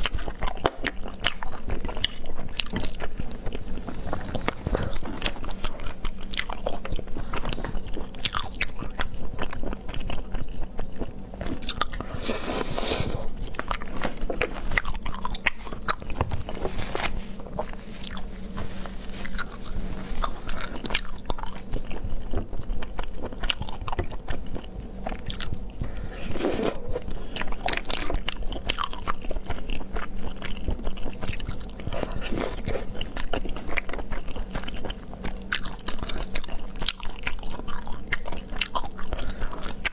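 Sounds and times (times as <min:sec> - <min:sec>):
wet chewing clicks: 0:20.2 - 0:39.9.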